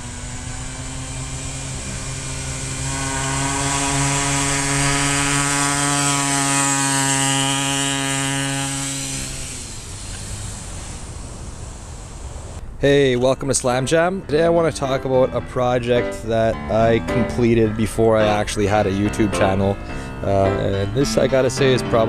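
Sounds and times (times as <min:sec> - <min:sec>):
small two-stroke engine passing: 0:00.0 - 0:12.6.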